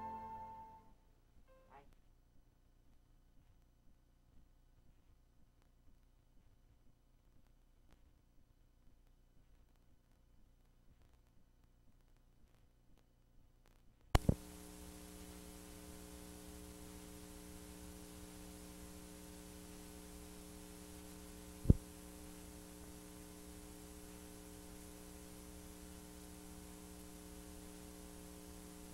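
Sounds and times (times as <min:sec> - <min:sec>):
sharp clicks: 0:14.2 - 0:14.4
electrical hum and hiss: 0:14.2 - 0:28.9.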